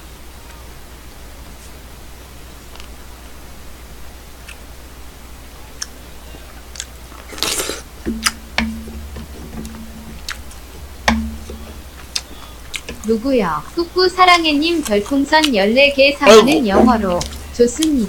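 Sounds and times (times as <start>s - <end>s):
low steady hum: 0.0s - 18.0s
person chewing: 6.7s - 13.1s, 14.6s - 15.6s, 16.3s - 18.0s
slurping: 6.8s - 7.9s.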